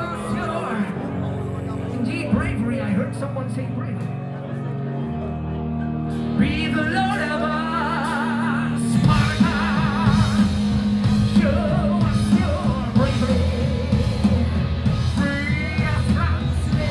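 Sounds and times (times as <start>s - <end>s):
metal band playing live: 0.0s - 16.9s
person singing with vibrato: 6.1s - 16.9s.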